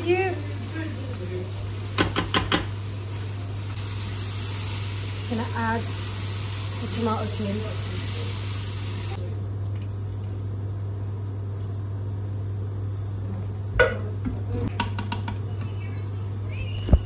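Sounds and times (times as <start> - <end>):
knock against metal pot: 2.0 - 2.7, 13.8 - 15.4.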